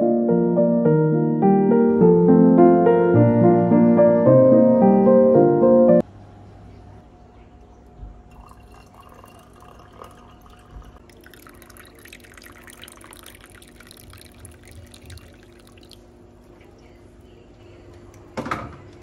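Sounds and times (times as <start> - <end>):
liquid pouring and dripping: 8.2 - 16.7.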